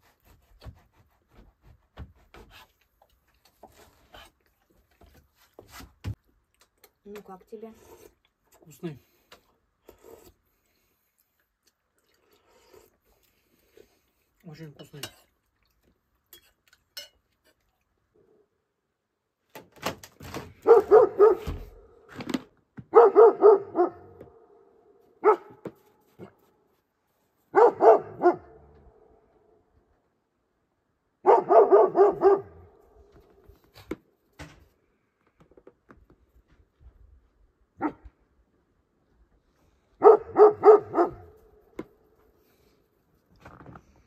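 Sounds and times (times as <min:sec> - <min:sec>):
dog barking: 0:20.6 - 0:21.8, 0:22.9 - 0:24.2, 0:25.2 - 0:25.6, 0:27.5 - 0:28.7, 0:31.2 - 0:32.8, 0:37.8 - 0:38.0, 0:40.0 - 0:41.4.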